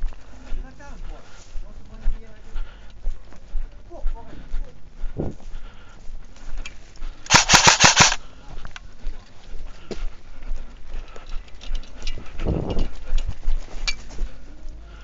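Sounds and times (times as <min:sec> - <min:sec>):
airsoft gun burst: 0:07.3 - 0:08.2.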